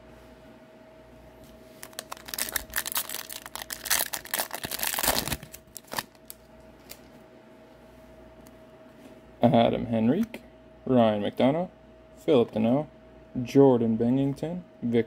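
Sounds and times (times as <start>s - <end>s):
faint steady hum: 0.0s - 15.0s
foil wrapper crinkling and tearing: 1.8s - 7.0s.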